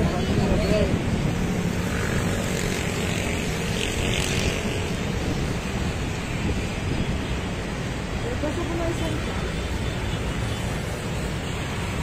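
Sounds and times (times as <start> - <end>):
wind noise on microphone: 2.6 - 8.2.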